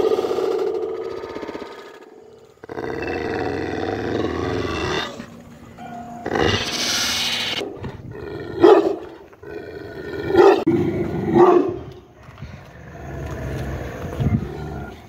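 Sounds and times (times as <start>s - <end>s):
dog barking: 8.6s - 9.2s, 10.4s - 10.7s, 11.3s - 11.9s.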